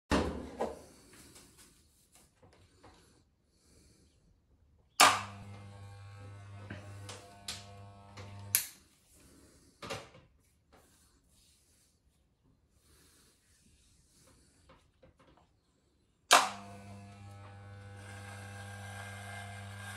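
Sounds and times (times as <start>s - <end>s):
electric hair clippers buzzing: 5.0s - 8.8s, 16.3s - 19.9s.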